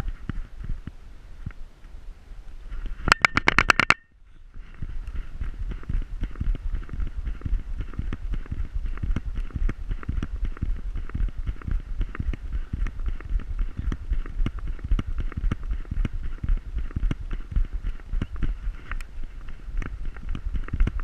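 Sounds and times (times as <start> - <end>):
low wind rumble on microphone: 0.0 - 21.0
camera knocks and thumps: 3.1 - 4.0.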